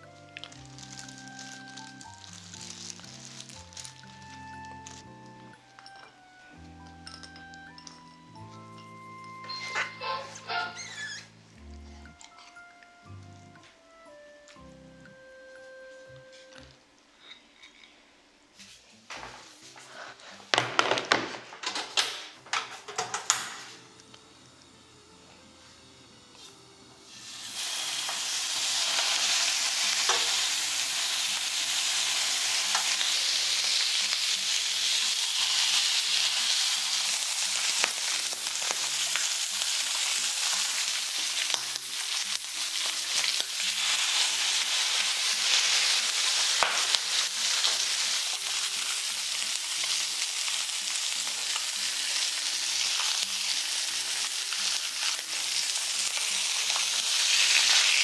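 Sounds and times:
meat sizzling on a griddle pan: 0.0s - 5.3s, 27.0s - 58.0s.

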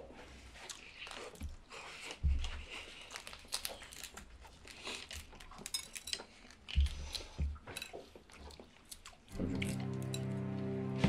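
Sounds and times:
eggshell crackling as peeled: 2.9s - 10.2s.

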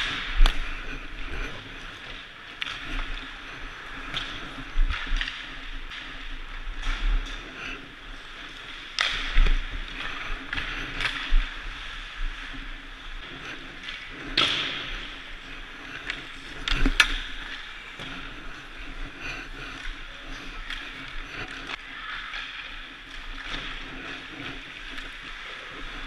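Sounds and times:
skates scraping ice: 0.0s - 26.0s
sticks cracking pucks: 13.8s - 15.2s.

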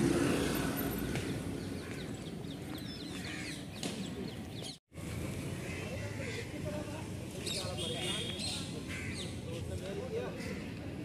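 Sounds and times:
car passing by: 0.0s - 1.7s
birds chirping: 0.2s - 4.8s.

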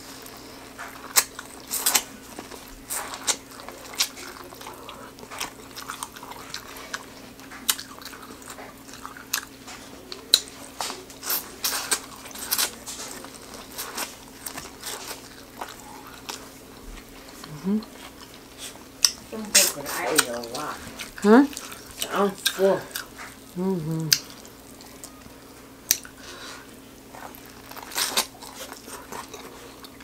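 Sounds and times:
chewing corn on the cob: 0.1s - 30.0s.

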